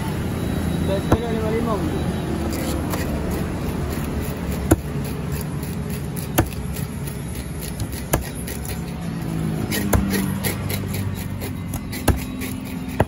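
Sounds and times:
knife chopping on wooden block: 3.9s - 8.8s, 9.6s - 13.0s.

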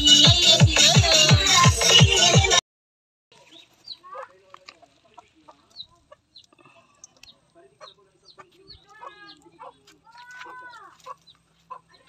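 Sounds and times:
chickens clucking: 3.4s - 12.0s.

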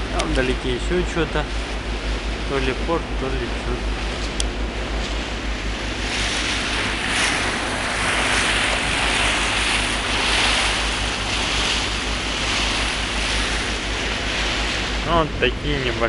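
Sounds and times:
water rushing along ferry hull: 0.0s - 16.0s
wind buffeting microphone: 0.0s - 16.0s.

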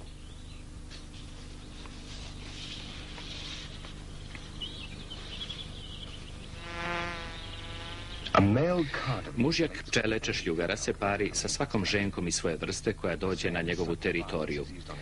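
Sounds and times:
bees buzzing: 2.8s - 9.9s.

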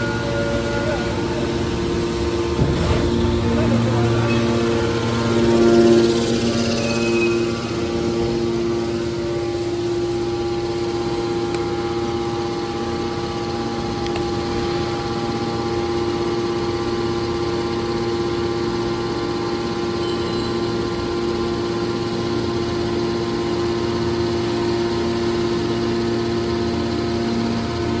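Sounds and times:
hydraulic baler motor humming: 0.0s - 28.0s.

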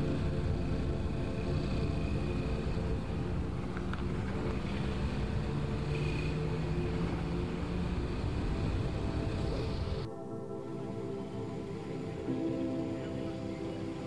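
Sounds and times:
vehicle engine running: 0.0s - 10.1s
road noise: 0.0s - 14.0s.

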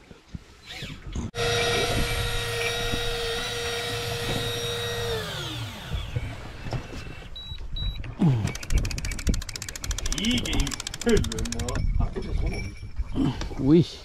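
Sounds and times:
small electric motor whining: 0.7s - 7.3s
fast run of clicks: 8.4s - 11.8s.

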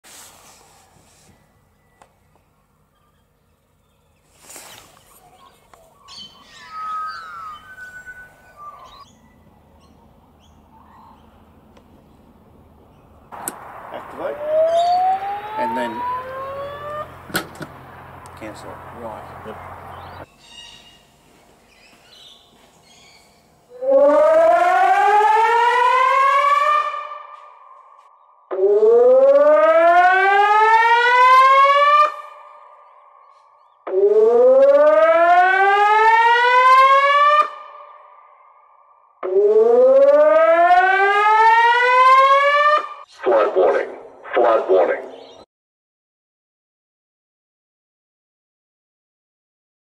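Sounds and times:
birds warbling: 2.3s - 13.4s, 14.0s - 23.7s, 32.3s - 33.9s, 43.1s - 45.5s
high bird chirps: 4.0s - 11.4s, 14.4s - 15.4s
electronic warning siren wailing: 6.2s - 9.2s, 13.8s - 17.3s, 23.7s - 45.2s.

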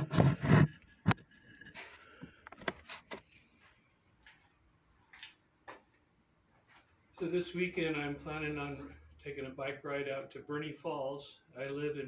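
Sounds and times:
camera handling thumps and scrapes: 0.0s - 3.4s
clicks and rustles: 0.0s - 3.4s
footsteps on concrete: 3.6s - 6.9s.

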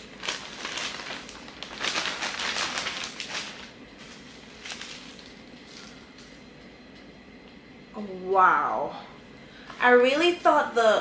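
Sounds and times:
packaging and cloth rustling: 0.0s - 6.1s.

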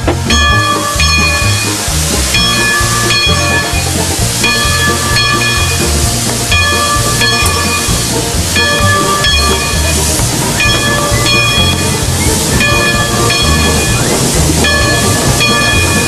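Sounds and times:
low pulsing engine beat: 0.0s - 16.0s
steam hissing: 0.0s - 16.0s
pitched ringing tone: 0.3s - 1.8s.

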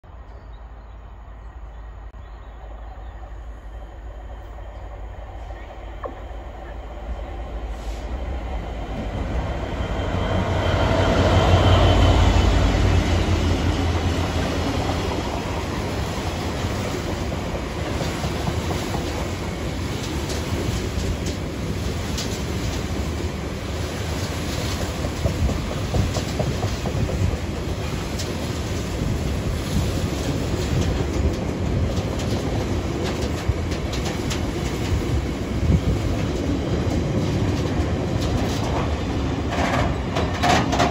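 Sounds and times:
diesel locomotive engine rumbling: 0.0s - 40.9s
train wheels rolling: 3.0s - 40.9s
wheels clanking over track: 30.2s - 40.9s.

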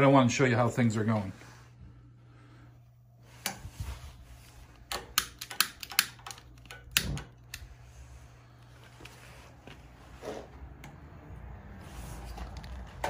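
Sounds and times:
low steady hum: 0.0s - 13.0s
sharp clicks and knocks: 4.8s - 7.7s.

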